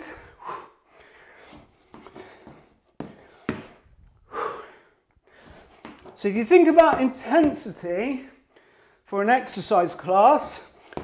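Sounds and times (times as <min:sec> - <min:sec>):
man breathing hard: 0:00.0 - 0:06.1, 0:08.3 - 0:09.1.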